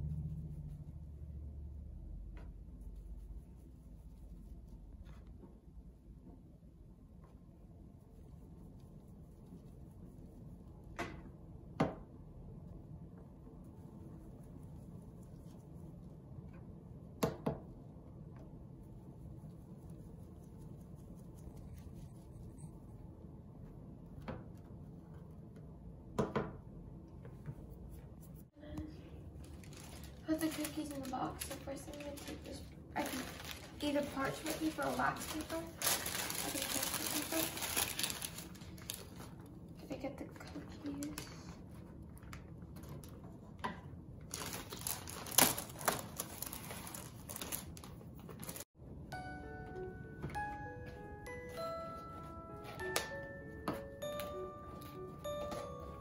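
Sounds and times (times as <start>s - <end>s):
low room hum: 0.0s - 56.0s
paper and cardboard rustling: 29.4s - 39.4s, 44.3s - 48.7s.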